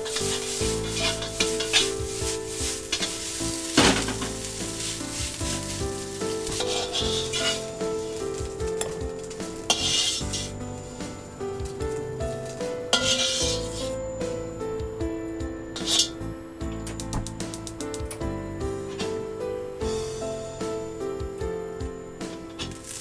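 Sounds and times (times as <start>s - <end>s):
metal spatula scraping wok: 0.0s - 14.0s, 15.8s - 16.2s
rice sizzling: 0.0s - 16.3s, 22.2s - 23.0s
background music with held notes: 0.0s - 23.0s.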